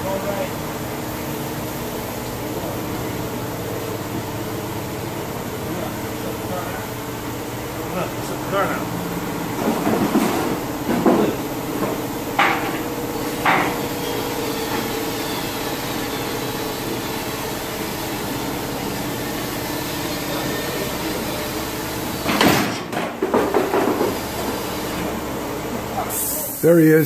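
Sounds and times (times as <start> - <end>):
steady machine hum: 24.2 - 27.0.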